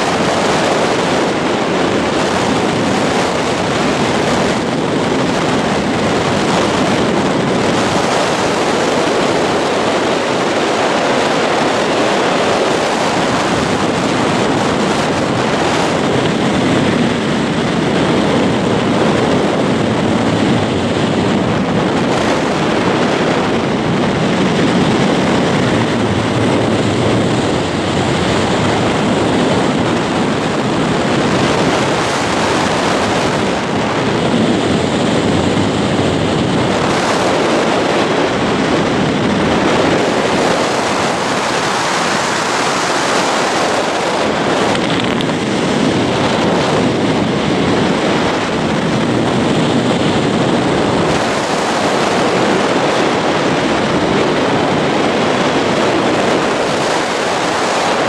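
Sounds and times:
wind noise on microphone: 0:00.0 - 0:58.0.

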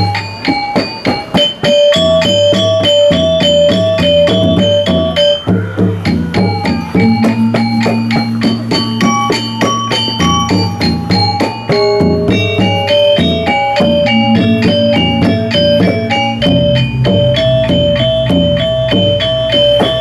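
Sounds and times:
gamelan metallophones and gongs: 0:00.0 - 0:20.0
low ringing gong tone: 0:06.4 - 0:09.3, 0:13.8 - 0:20.0.

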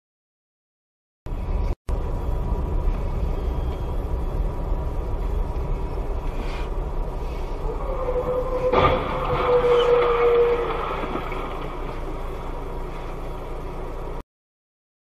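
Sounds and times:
engine and road rumble: 0:01.3 - 0:14.2.

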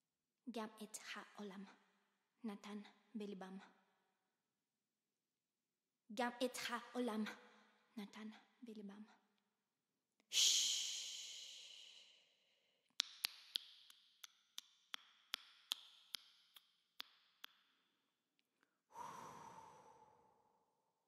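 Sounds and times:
woman's breathy hiss: 0:10.3 - 0:12.2, 0:19.0 - 0:20.4
sharp mouth clicks: 0:13.0 - 0:17.6
breathy exhale with hummed tone: 0:18.9 - 0:20.6.

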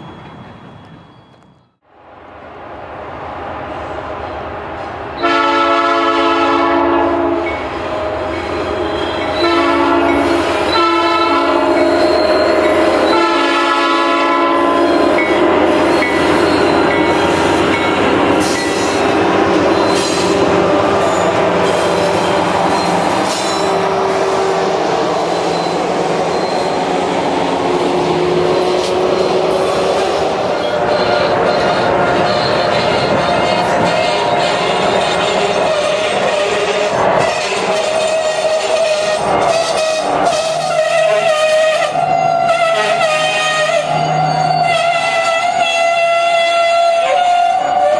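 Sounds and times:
high wheel squeal: 0:00.0 - 0:01.8, 0:07.4 - 0:13.3, 0:14.6 - 0:45.9
train rumbling past: 0:00.0 - 0:47.9
locomotive air horn blasts: 0:05.2 - 0:17.1, 0:30.8 - 0:47.9.

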